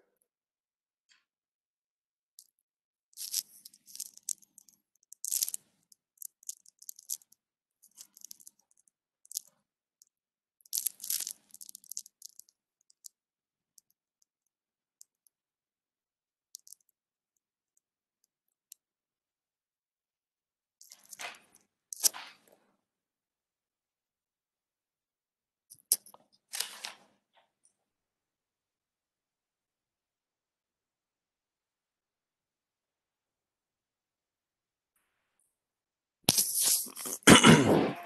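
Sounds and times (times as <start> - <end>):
handling noise rustling and clicking: 20.8 - 22.6.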